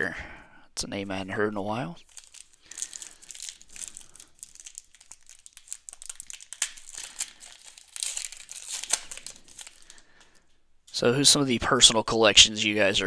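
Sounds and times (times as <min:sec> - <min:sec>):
plastic wrapper crinkling and tearing: 0:02.0 - 0:10.5.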